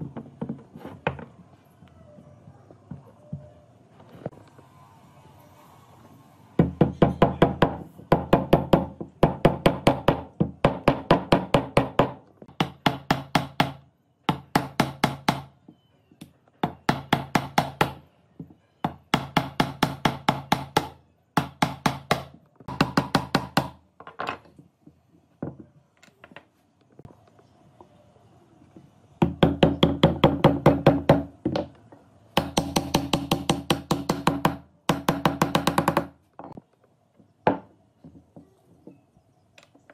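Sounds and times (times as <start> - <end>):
wooden mallet knocking wood: 29.2 - 31.8.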